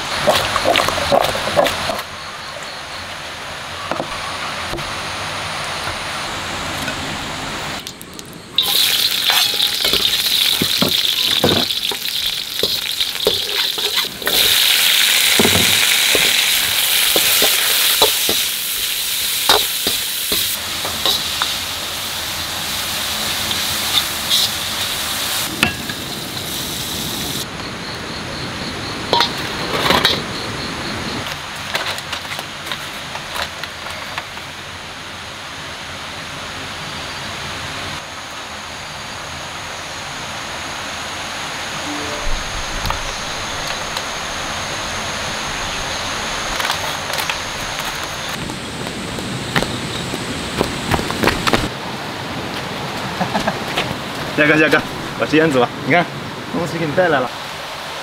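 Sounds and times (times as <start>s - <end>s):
metal spatula scraping wok: 8.6s - 21.6s
food sizzling in a wok: 8.6s - 27.4s.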